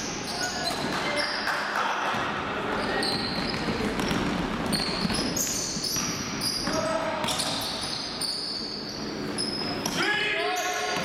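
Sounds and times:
sneakers squeaking: 0:00.0 - 0:11.0
basketball bouncing: 0:02.1 - 0:07.9.

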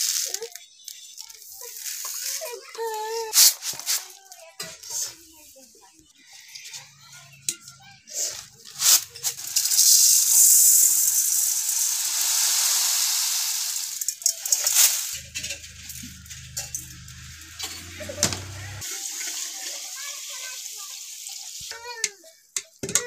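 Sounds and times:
rice grains pouring into metal pot: 0:08.2 - 0:18.1, 0:18.7 - 0:21.7.

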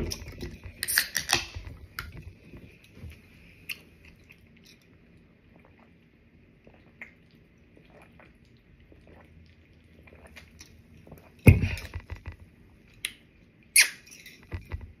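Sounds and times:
swallowing and mouth sounds: 0:05.4 - 0:12.0.

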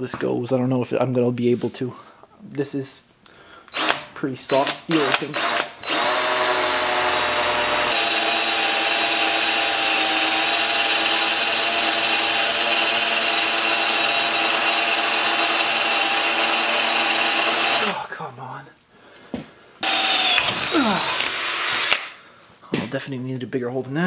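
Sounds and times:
cordless drill whining: 0:03.7 - 0:18.0, 0:19.8 - 0:22.2.

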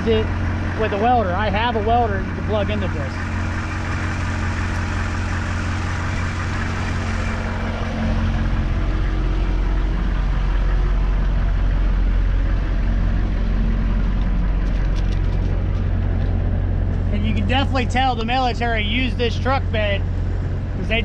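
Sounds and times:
diesel engine idling: 0:00.0 - 0:21.0.

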